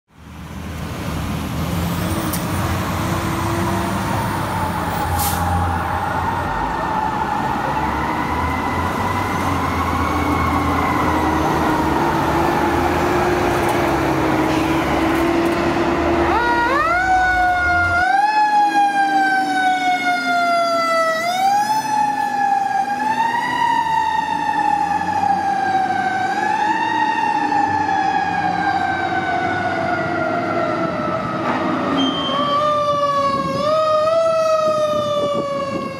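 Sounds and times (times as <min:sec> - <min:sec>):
truck engine rumble: 0:00.2 - 0:27.3
mechanical siren wailing: 0:03.4 - 0:14.2, 0:16.0 - 0:35.9.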